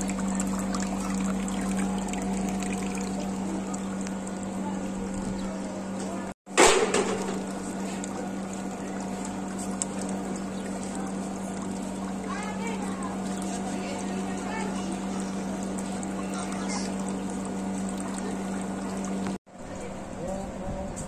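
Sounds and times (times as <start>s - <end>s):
water trickling into a tank: 0.0s - 4.5s
steady low hum: 0.0s - 21.0s.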